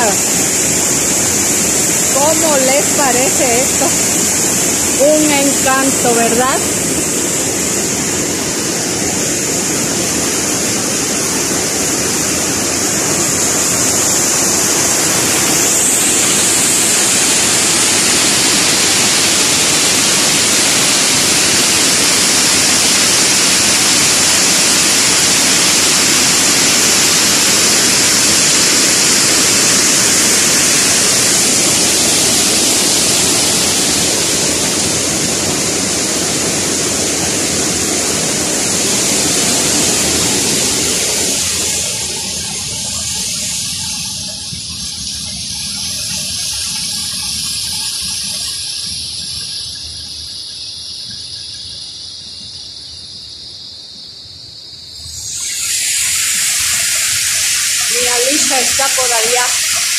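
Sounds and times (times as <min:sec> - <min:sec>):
river water rushing over rocks: 0:00.0 - 0:50.4.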